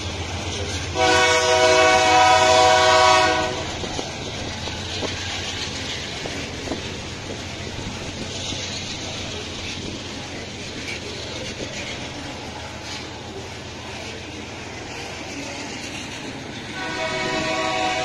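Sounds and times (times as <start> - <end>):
freight train rumbling past: 0.0 - 18.0
wheels clicking over rail joints: 0.0 - 18.0
locomotive horn chord: 1.0 - 3.8, 16.8 - 18.0.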